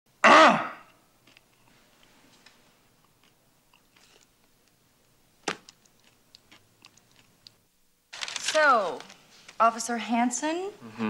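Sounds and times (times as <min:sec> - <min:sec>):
man chewing crunchy food: 0:01.2 - 0:02.1, 0:02.9 - 0:07.6.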